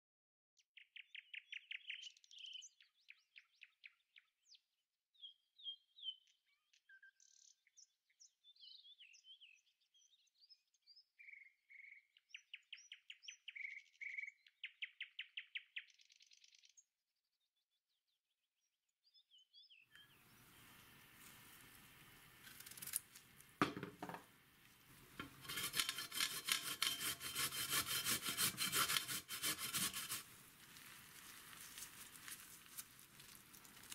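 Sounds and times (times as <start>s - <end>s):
birds chirping and trilling: 0.8s - 4.6s, 5.2s - 16.8s, 19.0s - 23.0s
knock: 23.6s - 24.2s
vegetable grating on metal grater: 25.2s - 32.9s.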